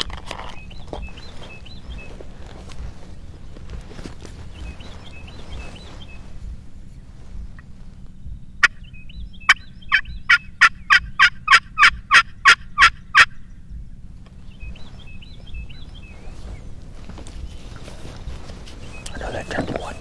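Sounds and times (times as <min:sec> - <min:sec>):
turkey call yelps: 0:08.6 - 0:13.4.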